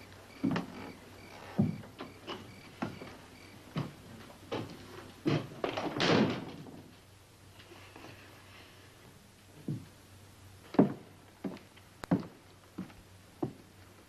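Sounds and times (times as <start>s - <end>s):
footsteps on wooden boards: 0.4s - 6.0s, 10.7s - 13.6s.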